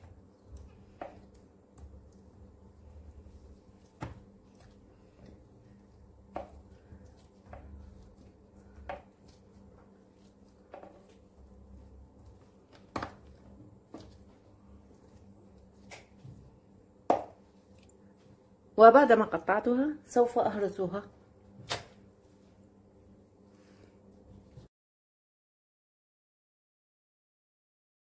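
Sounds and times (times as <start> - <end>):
low steady hum: 0.0 - 24.7.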